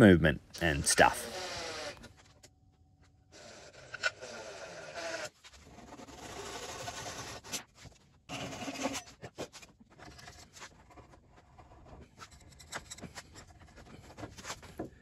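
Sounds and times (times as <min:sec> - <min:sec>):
chisel scraping wood: 0:03.3 - 0:07.6.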